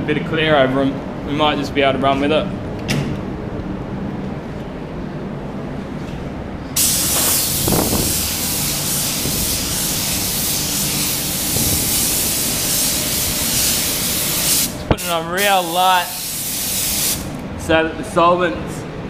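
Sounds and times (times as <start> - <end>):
spray gun hissing: 6.8 - 17.4.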